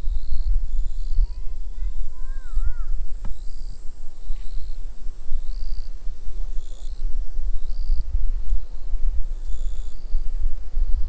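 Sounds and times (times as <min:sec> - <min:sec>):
high-pitched insect call: 0:00.0 - 0:11.0.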